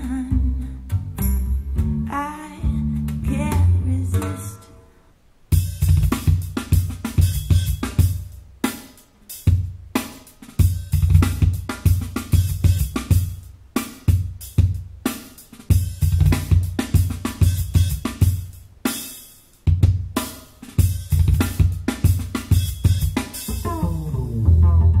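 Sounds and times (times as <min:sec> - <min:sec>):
deep bass notes: 0:00.0 - 0:04.5, 0:23.5 - 0:25.0
drum groove: 0:05.5 - 0:24.9.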